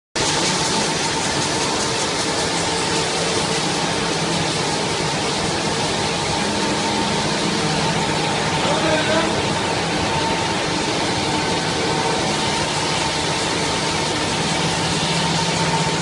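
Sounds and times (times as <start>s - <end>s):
knitting machines whirring: 0.2s - 16.0s.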